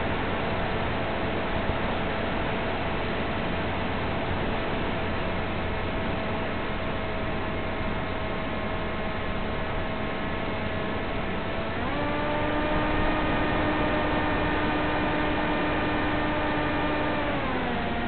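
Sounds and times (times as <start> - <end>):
electric motor and propeller: 7.0 - 18.0.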